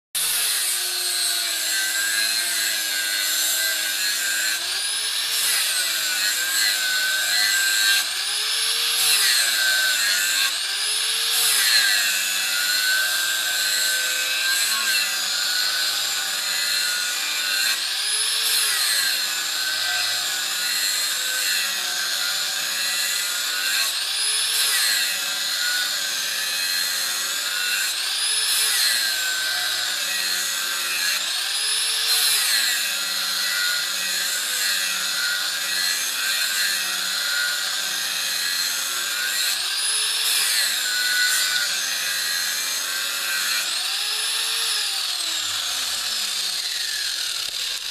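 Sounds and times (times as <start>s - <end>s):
angle grinder motor whine: 0.2s - 47.9s
disc grinding steel: 40.4s - 47.9s.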